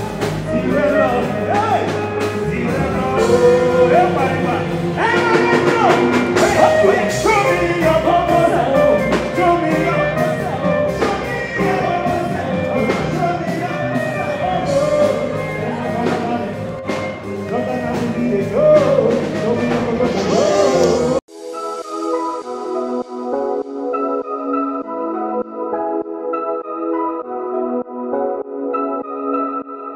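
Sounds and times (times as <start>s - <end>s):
live band playing: 0.0s - 21.2s
man singing into a microphone: 0.0s - 21.2s
drum hits: 5.0s - 8.0s.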